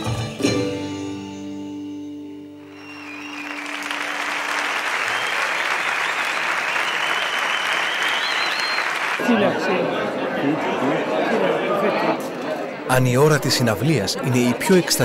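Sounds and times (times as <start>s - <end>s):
audience applauding: 2.7s - 9.7s.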